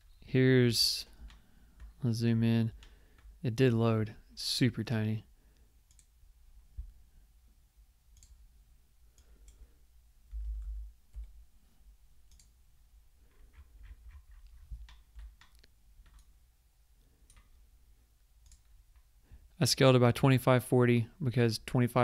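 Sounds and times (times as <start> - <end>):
mouse and keyboard clicks: 13.3 - 16.3.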